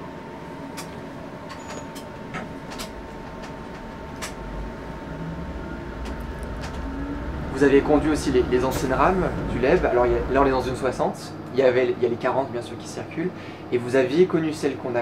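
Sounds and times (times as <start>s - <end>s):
electric train hum: 0.0s - 15.0s
low rumble: 2.2s - 11.6s.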